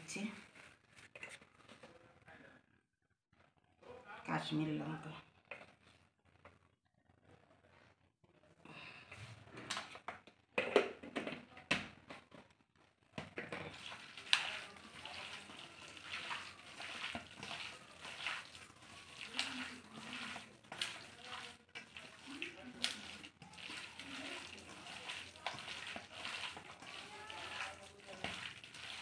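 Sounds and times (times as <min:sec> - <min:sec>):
wet squelching of kneaded meat: 0:13.7 - 0:29.0.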